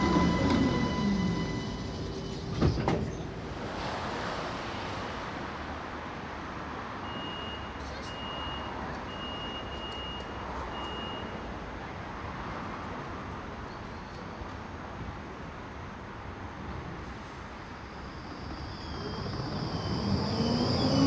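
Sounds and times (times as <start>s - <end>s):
tram equipment humming: 0.0s - 3.9s, 15.5s - 21.0s
street noise: 0.0s - 21.0s.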